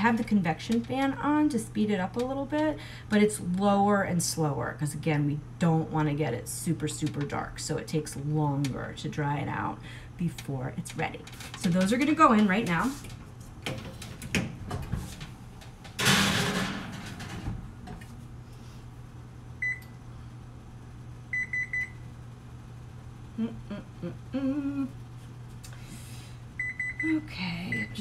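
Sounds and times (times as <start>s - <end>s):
low steady hum: 0.0s - 28.0s
oven control panel beeps: 19.6s - 20.0s, 21.3s - 22.0s, 26.6s - 28.0s.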